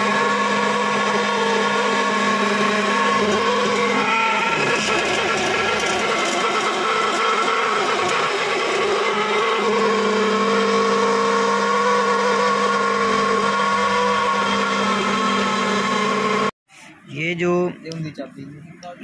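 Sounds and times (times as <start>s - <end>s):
key cutting machine whine: 0.0s - 16.5s.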